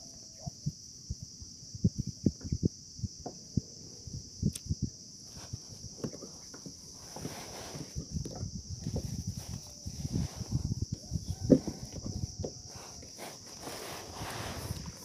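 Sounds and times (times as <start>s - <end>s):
steady high-pitched hiss: 0.0s - 15.0s
rustling: 5.2s - 8.2s, 8.8s - 15.0s.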